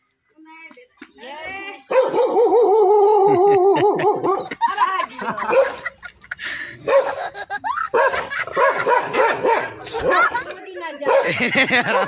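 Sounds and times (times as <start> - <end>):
dogs barking: 1.9 - 4.6, 5.3 - 6.0, 6.8 - 12.0.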